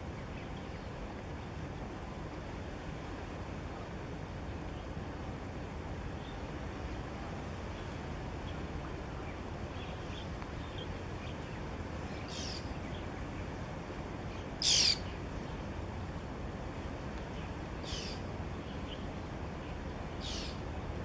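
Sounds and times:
birds calling: 0:07.7 - 0:13.6, 0:14.2 - 0:15.6, 0:17.3 - 0:20.8.

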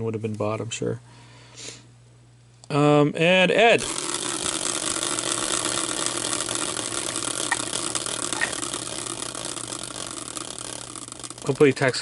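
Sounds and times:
spinner pointer ticking rattle: 0:03.6 - 0:12.0.

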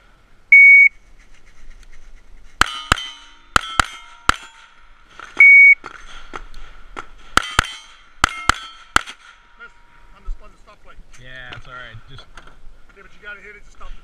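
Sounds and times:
shot timer electronic beep: 0:00.5 - 0:00.9, 0:05.4 - 0:05.8
steel target plate ringing: 0:02.6 - 0:05.8, 0:07.2 - 0:10.2
pistol shots: 0:07.4 - 0:09.5.

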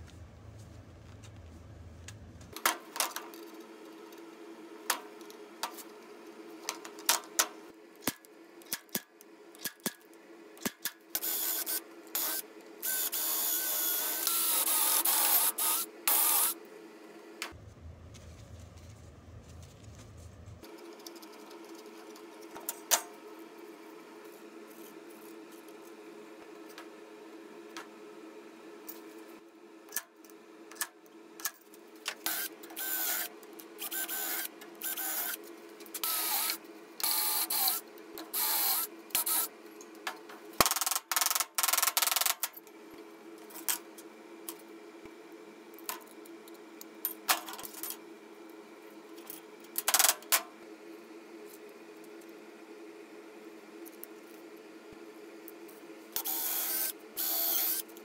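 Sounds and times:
steady low hum: 0:00.0 - 0:02.6, 0:16.8 - 0:22.4
power drill boring through metal: 0:56.2 - 0:57.8.

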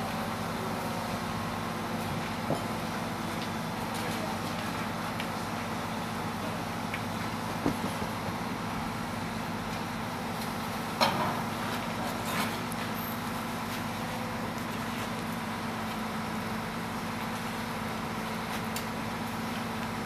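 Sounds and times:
crane diesel engine running: 0:00.0 - 0:20.0.

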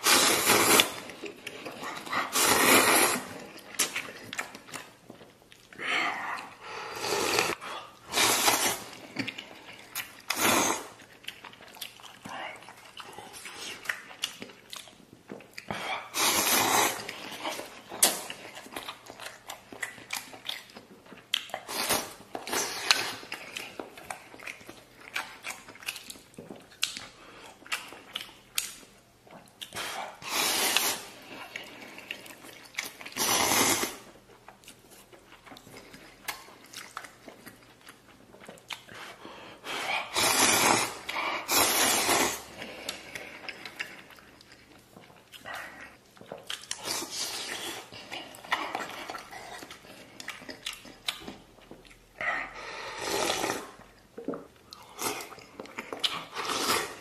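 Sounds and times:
noodle slurps: 0:00.0 - 0:01.1, 0:02.0 - 0:04.0, 0:06.9 - 0:09.0, 0:10.2 - 0:11.0, 0:16.1 - 0:18.3, 0:29.8 - 0:31.3, 0:33.1 - 0:34.0, 0:39.8 - 0:42.6, 0:52.8 - 0:53.9, 0:54.9 - 0:57.0
chewing and mouth clicks: 0:03.3 - 0:06.6, 0:08.5 - 0:15.9, 0:16.7 - 0:29.9, 0:34.1 - 0:39.2, 0:41.8 - 0:52.3, 0:53.2 - 0:57.0.

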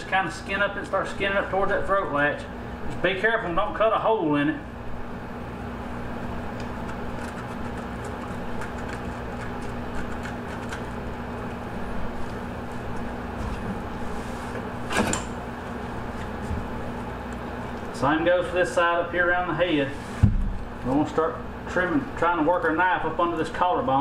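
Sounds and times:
machine hum: 0:00.0 - 0:24.0
clicks and scrapes of fish skinning: 0:06.5 - 0:13.2.

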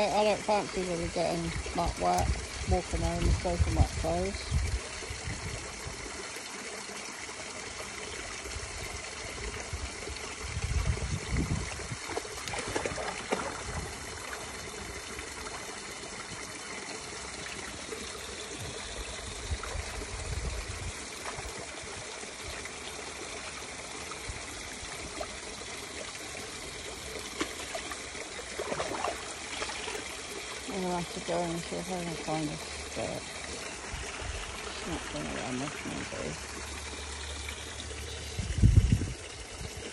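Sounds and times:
stream water trickling: 0:00.0 - 0:39.9
dog wading in water: 0:11.5 - 0:23.7, 0:24.9 - 0:37.8.

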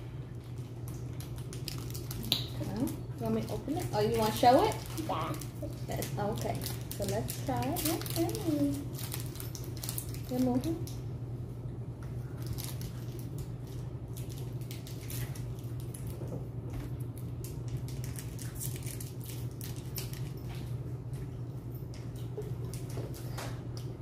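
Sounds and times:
candy wrappers crinkling: 0:00.4 - 0:11.0, 0:12.2 - 0:16.2, 0:17.0 - 0:20.7.

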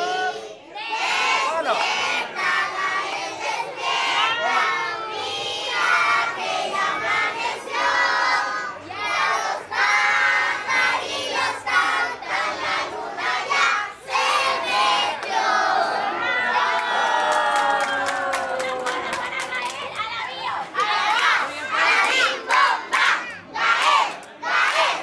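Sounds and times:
crowd singing and shouting: 0:00.0 - 0:17.1, 0:20.4 - 0:25.0.

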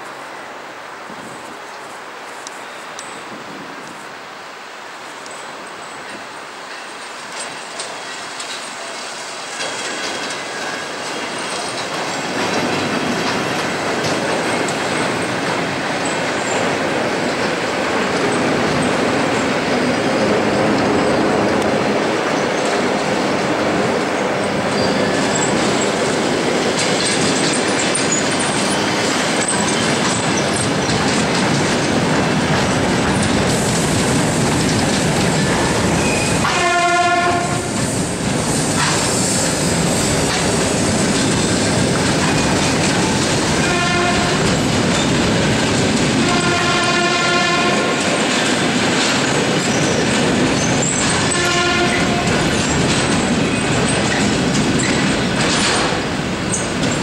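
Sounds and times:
train wheels clattering over rail joints: 0:05.3 - 0:57.0
high wheel squeals: 0:24.4 - 0:31.1, 0:35.4 - 0:36.8, 0:49.5 - 0:55.9.

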